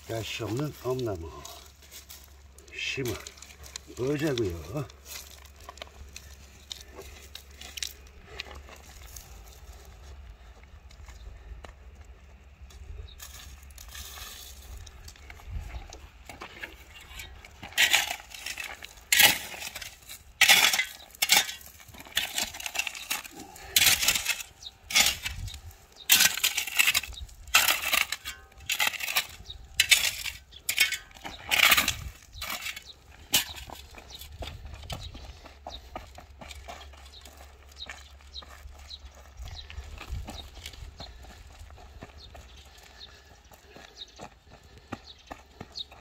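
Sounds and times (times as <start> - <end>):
shovel scraping stony soil: 13.2 - 15.6, 16.3 - 35.2.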